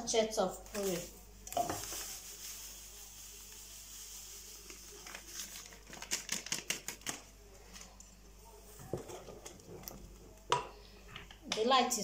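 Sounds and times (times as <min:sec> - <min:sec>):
faint steady hiss: 0:00.0 - 0:12.0
paper sachet crinkling: 0:00.7 - 0:07.3.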